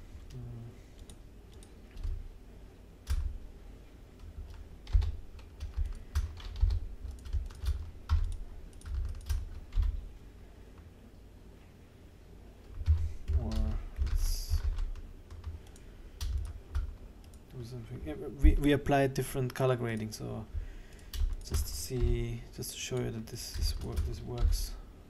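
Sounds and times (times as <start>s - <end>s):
keyboard and mouse clicking: 1.0s - 2.2s, 4.2s - 10.0s, 12.6s - 17.5s.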